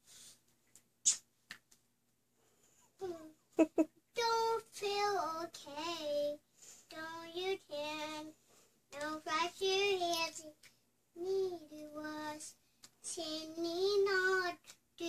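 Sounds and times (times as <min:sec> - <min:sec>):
girl singing unaccompanied: 0:03.0 - 0:03.4, 0:04.1 - 0:15.0.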